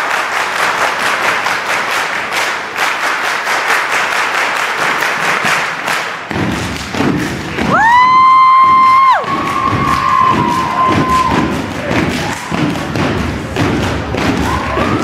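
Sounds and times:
group clapping in unison: 0.0s - 15.0s
deep bass beat: 6.3s - 15.0s
crowd cheering: 7.5s - 15.0s.

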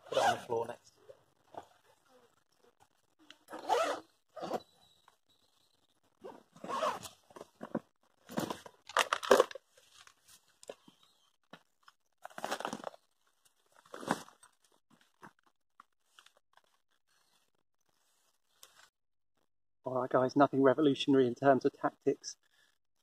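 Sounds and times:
zip noise: 0.0s - 0.6s, 3.4s - 4.8s, 6.2s - 7.2s.

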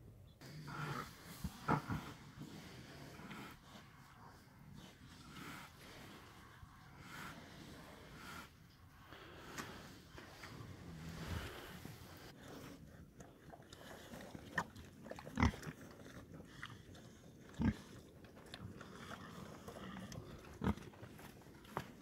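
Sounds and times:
pig grunting: 0.4s - 8.6s, 10.7s - 22.0s.

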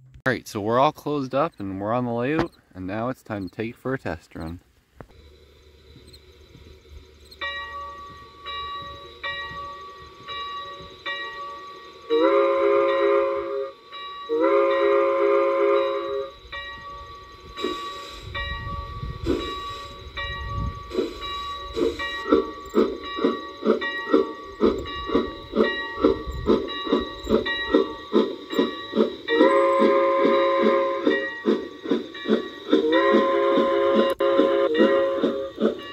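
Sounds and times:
steam hissing: 5.1s - 35.9s
steam locomotive chuffing: 5.1s - 35.9s
train chime whistle: 7.4s - 35.9s.

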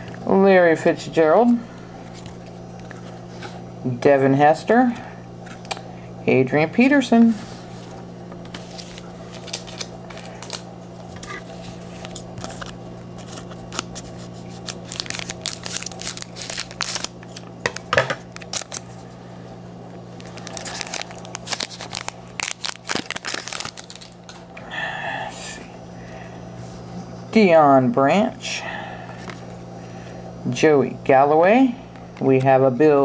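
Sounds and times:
plastic wrapper crinkling: 8.5s - 10.7s, 11.3s - 19.0s, 20.1s - 24.4s.

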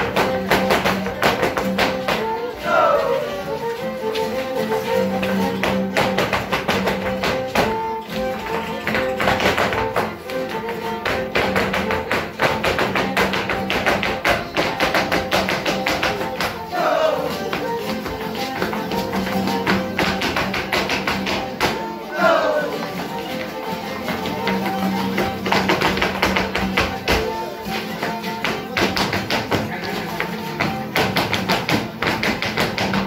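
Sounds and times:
feet stamping on concrete: 0.0s - 3.2s, 3.8s - 33.0s
guitar: 0.0s - 33.0s
live folk dance music: 0.0s - 33.0s.

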